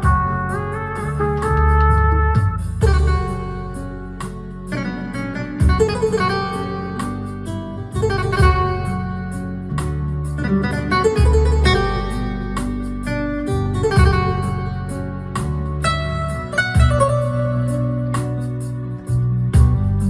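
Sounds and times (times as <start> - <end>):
bass notes: 0.0 - 20.0
plucked guitar: 0.0 - 20.0
steady beat: 0.0 - 20.0.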